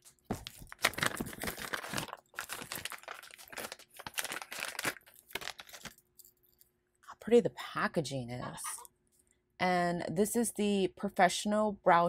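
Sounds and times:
plastic bag crinkling: 0.0s - 6.5s.

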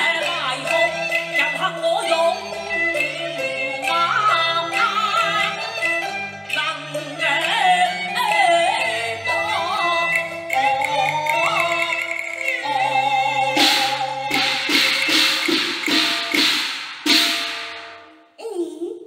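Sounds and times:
opera singing: 0.0s - 15.1s
instrumental accompaniment: 0.0s - 18.4s.

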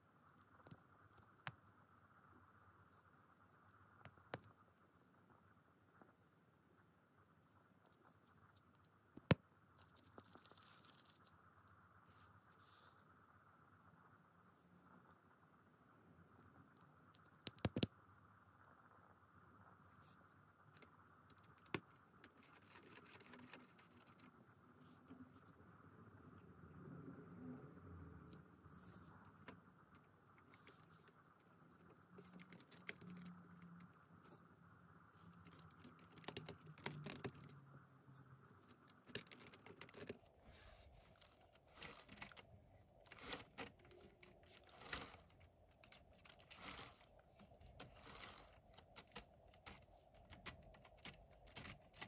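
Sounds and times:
plastic toy parts clicking: 43.1s - 52.0s.

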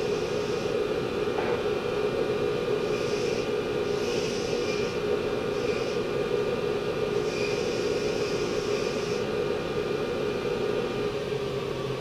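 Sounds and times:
steel grinding hiss: 7.2s - 9.2s.

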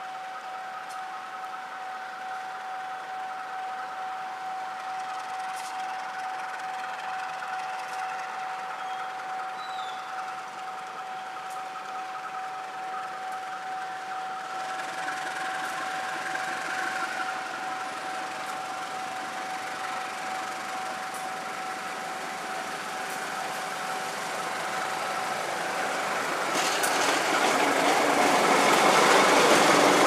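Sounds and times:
diesel locomotive running: 0.0s - 30.0s
high-pitched whine: 0.0s - 30.0s.

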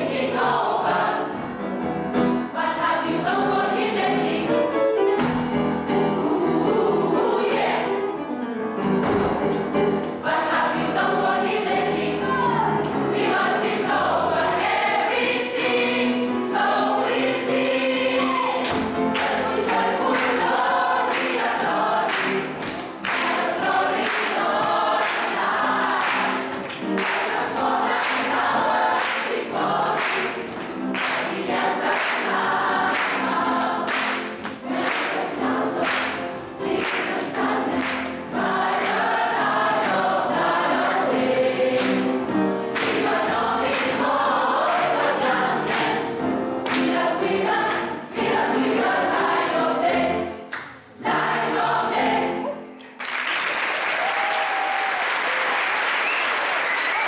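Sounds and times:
gospel choir singing: 0.0s - 52.8s
singers clapping on the beat: 17.9s - 48.0s, 52.8s - 57.0s
audience applause: 52.8s - 57.0s.

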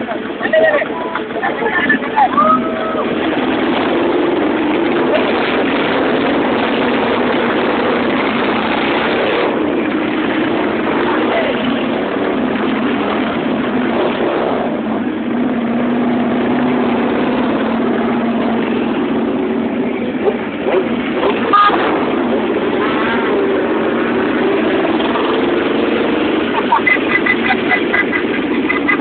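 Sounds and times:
motorcycles riding past: 16.2s - 29.0s.

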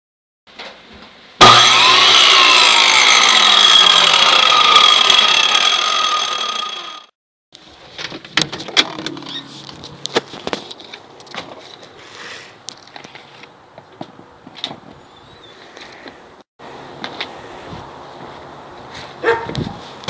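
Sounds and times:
power tool high whine: 1.4s - 7.1s.

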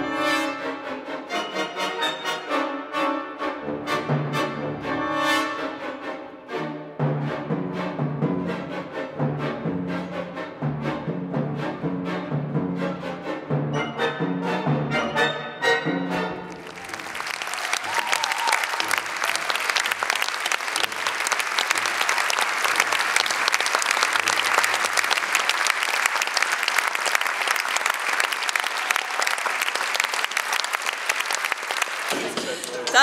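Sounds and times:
orchestra playing loud chords: 0.0s - 17.2s
audience applauding: 16.5s - 33.0s.

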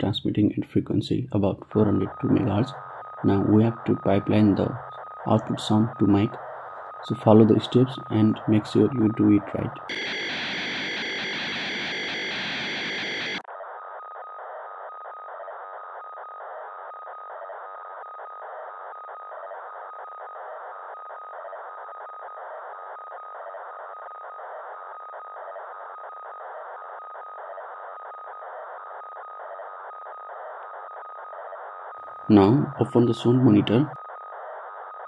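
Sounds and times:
faint pulse: 0.0s - 35.0s
radio data hiss: 0.0s - 35.0s
steady tone: 1.4s - 13.5s.

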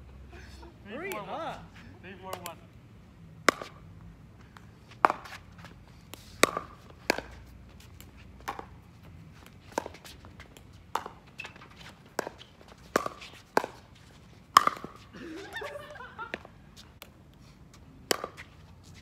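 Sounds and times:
paddles hitting plastic ball: 3.4s - 3.8s, 4.9s - 8.8s, 9.5s - 15.1s, 18.0s - 18.5s.

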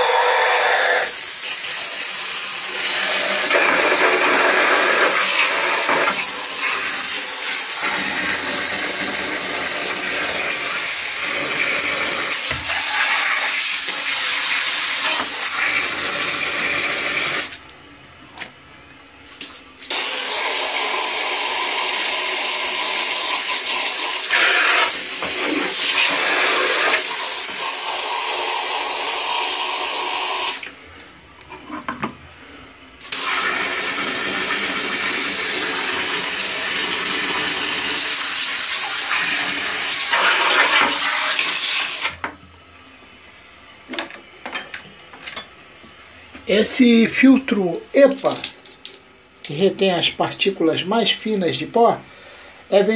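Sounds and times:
hose water spraying on plastic: 33.0s - 42.2s.

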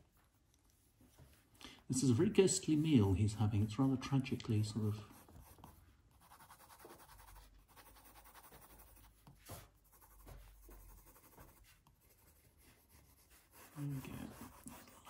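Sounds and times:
pencil scratching on paper: 4.6s - 15.0s.

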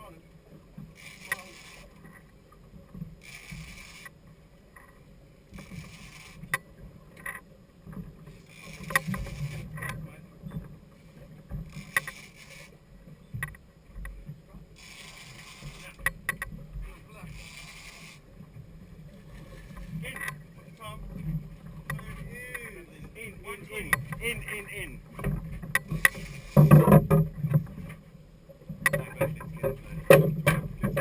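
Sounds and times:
boat and water rumble: 0.0s - 31.0s
sharp clicks and knocks: 5.6s - 10.7s, 11.5s - 12.4s, 13.3s - 14.2s, 15.3s - 16.6s, 23.8s - 24.4s, 25.1s - 28.0s, 28.7s - 31.0s.

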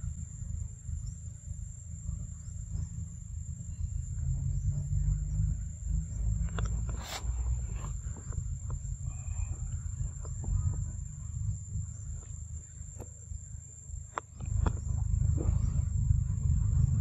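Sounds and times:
wind rumble on microphone: 0.0s - 17.0s
small clicks and rustles: 6.4s - 11.3s.

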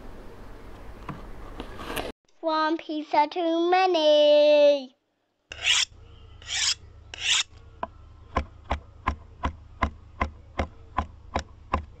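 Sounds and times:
rasping scrapes: 5.5s - 7.5s.

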